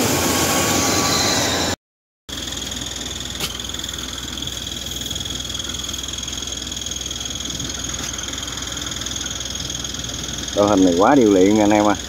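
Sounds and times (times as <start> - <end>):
diesel engine hum: 0.0 - 12.0
high-pitched whine: 0.0 - 12.0.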